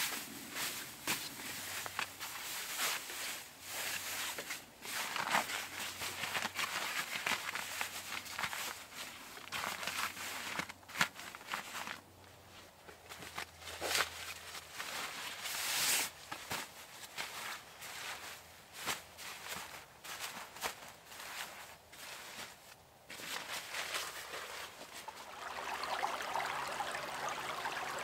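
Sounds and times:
camping gear rustling and crinkling: 0.0 - 28.0
sleeping bag swish: 23.4 - 28.0.

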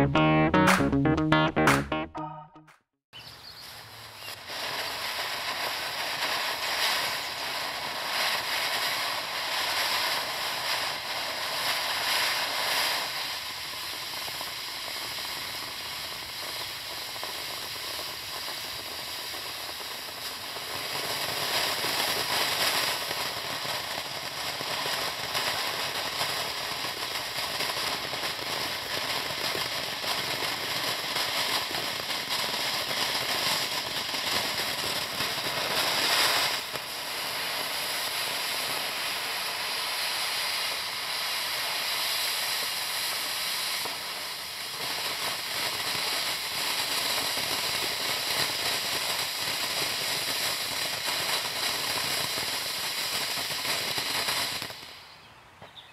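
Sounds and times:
firework spraying sparks: 4.3 - 55.2.

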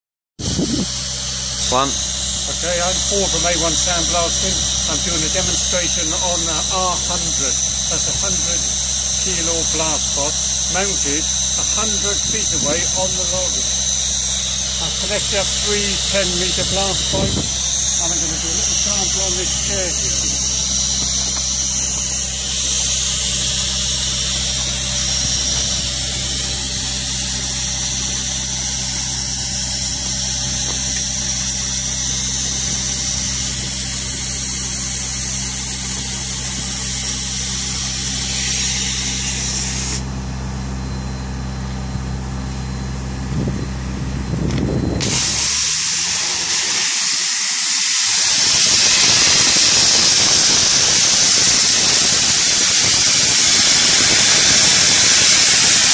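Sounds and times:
machine hum: 0.4 - 55.9
sandblast rushing hiss: 0.8 - 40.0, 45.0 - 55.9
high hiss: 0.9 - 40.0, 45.0 - 55.9.

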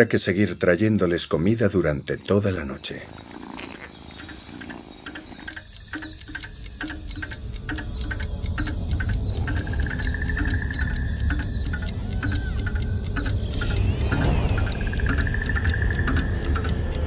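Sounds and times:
insects chirping: 0.0 - 17.0
steady high insect trill: 0.0 - 17.0
low rumble: 7.6 - 17.0.

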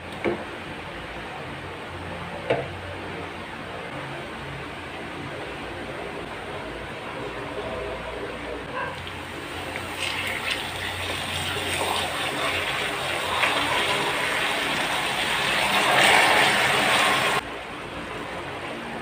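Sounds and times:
caramel hissing and bubbling: 9.0 - 17.4.

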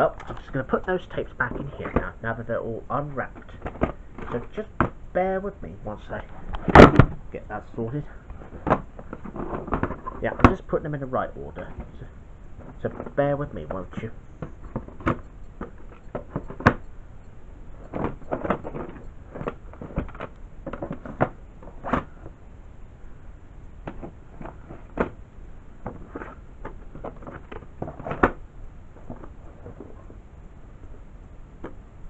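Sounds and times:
plastic tape cases clacking: 17.9 - 22.3.

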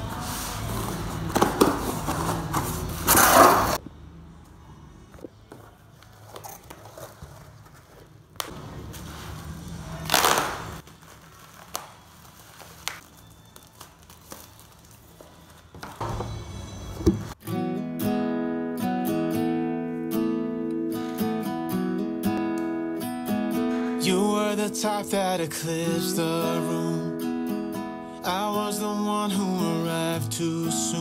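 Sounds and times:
plastic crinkling: 6.0 - 16.0
blade cutting bubble wrap: 9.9 - 15.7.

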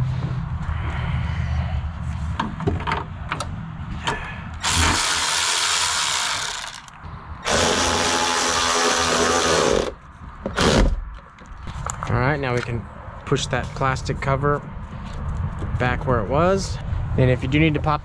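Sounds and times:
cordless ratchet running: 4.6 - 9.9.

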